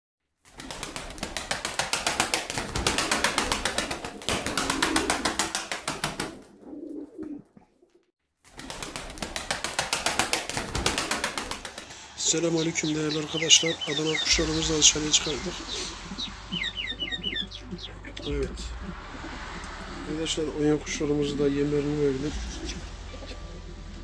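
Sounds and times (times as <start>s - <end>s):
pigeon wings flapping: 0.5s - 7.4s, 8.5s - 16.3s
pigeon cooing: 6.2s - 7.6s, 15.2s - 20.2s.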